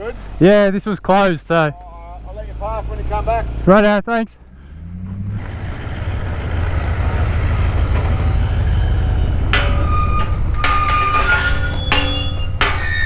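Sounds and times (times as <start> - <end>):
motor vehicle running: 0.0 - 13.0.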